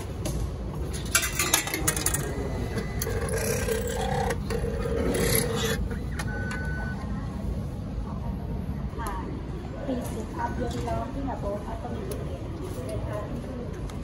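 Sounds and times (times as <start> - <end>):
mechanical whirring with rasping: 2.0 - 6.8
short beep: 5.9 - 7.0.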